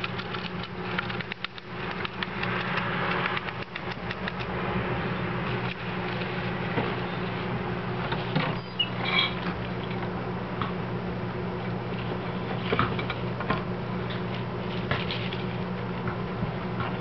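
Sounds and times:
gerbils scrabbling in bedding: 0.0s - 4.5s.

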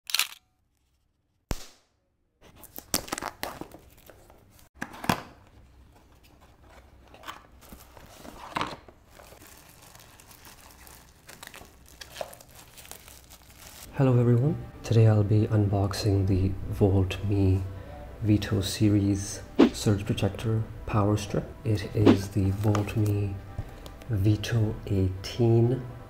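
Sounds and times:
paper crinkling and tearing: 7.2s - 13.9s.

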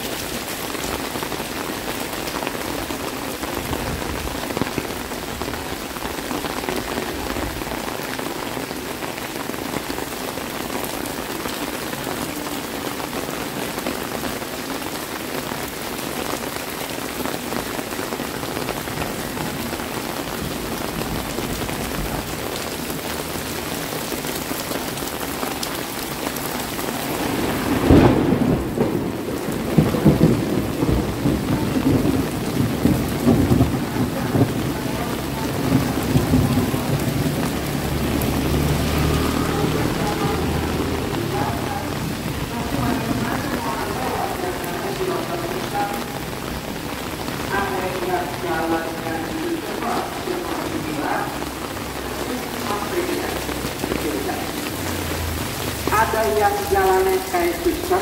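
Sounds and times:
heavy rain: 0.0s - 58.0s
low rumble of thunder: 27.0s - 45.4s.

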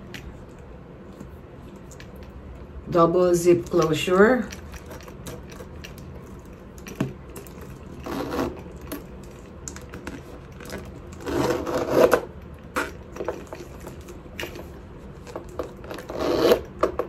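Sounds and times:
metal zip sliding: 8.0s - 8.6s, 11.2s - 12.2s, 15.9s - 16.7s.

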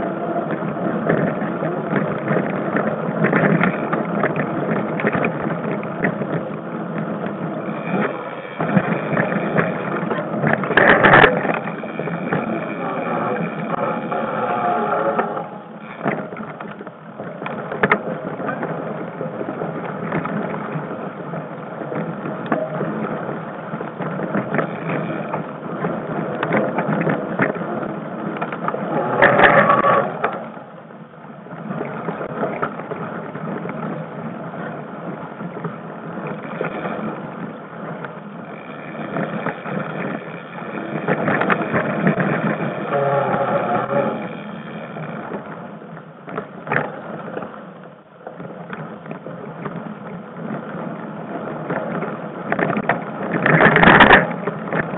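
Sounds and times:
bike rattle: 0.0s - 54.9s
wind rushing on microphone: 0.0s - 54.9s.

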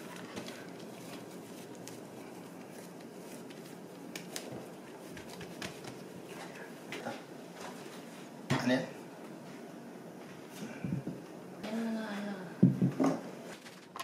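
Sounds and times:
hands kneading dough: 0.0s - 8.1s.

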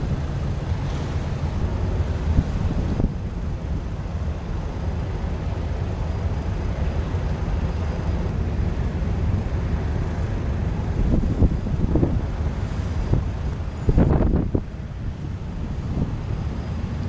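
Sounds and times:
wind buffeting microphone: 0.0s - 3.9s, 8.5s - 17.0s
ship diesel engines rumbling: 0.0s - 17.0s.

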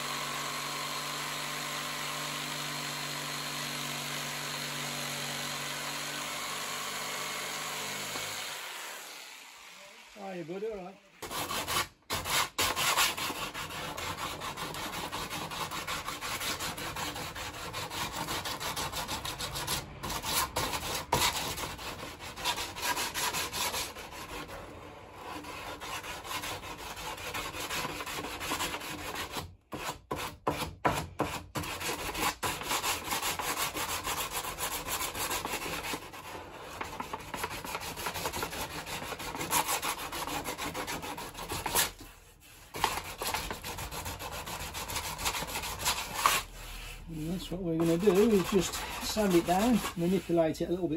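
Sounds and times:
sandpaper rubbing wood: 10.2s - 50.9s.

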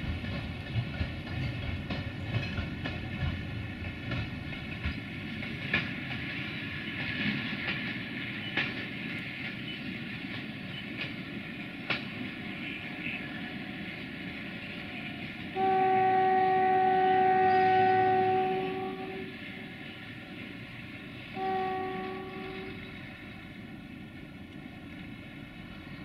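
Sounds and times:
wheels clacking over rail joints: 0.0s - 15.9s
train rolling rumble: 0.0s - 26.0s.

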